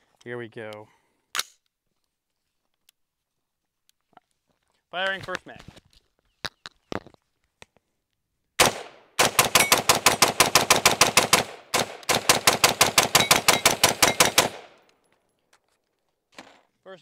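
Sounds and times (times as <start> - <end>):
rifle shots: 8.6 - 14.8.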